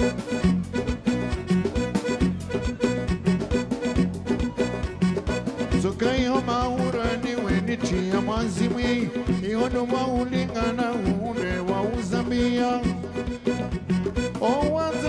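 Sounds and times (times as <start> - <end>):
live band dance music: 0.0 - 15.0.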